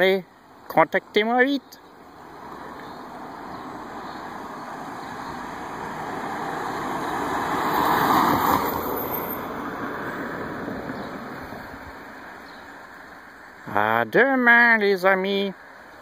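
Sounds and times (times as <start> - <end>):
car passing by: 2.2 - 13.3.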